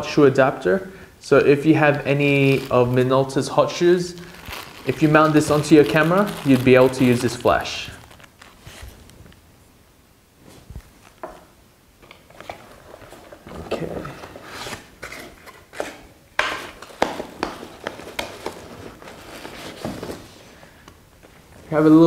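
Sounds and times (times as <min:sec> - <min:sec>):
cardboard box rustling: 0:04.2 - 0:09.0, 0:16.9 - 0:20.5.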